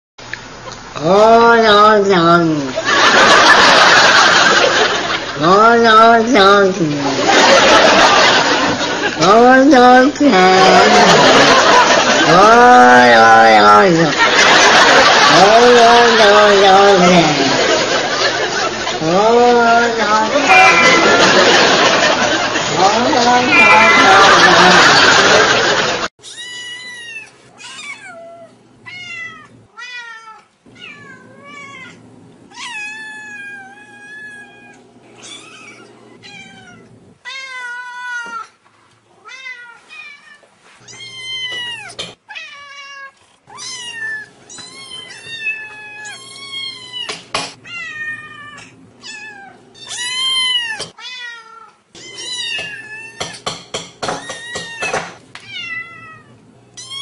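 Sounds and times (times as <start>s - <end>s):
cats meowing: 20.1s - 21.9s, 23.2s - 25.2s, 26.2s - 53.4s, 54.0s - 57.0s.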